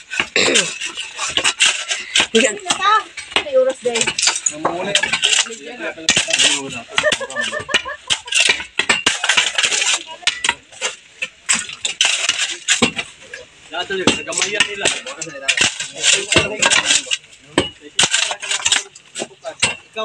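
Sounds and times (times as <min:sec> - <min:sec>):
shovel clinking against rocks: 0:00.1 - 0:13.4, 0:14.0 - 0:19.9.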